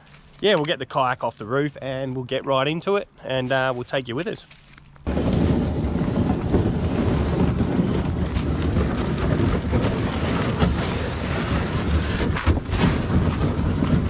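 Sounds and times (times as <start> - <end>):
footsteps on gravel: 0.0 - 2.4, 3.3 - 5.4
wind buffeting microphone: 5.1 - 14.0.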